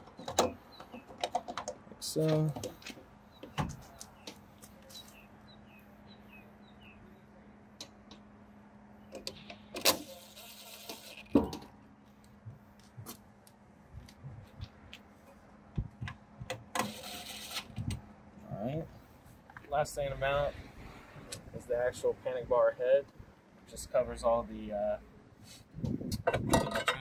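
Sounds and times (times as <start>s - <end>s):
power driver running screws: 16.8s - 17.7s.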